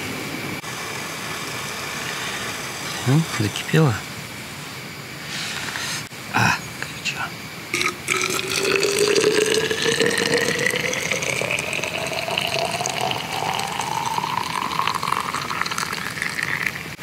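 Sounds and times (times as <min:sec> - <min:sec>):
water pouring into container: 0:07.8 - 0:17.0.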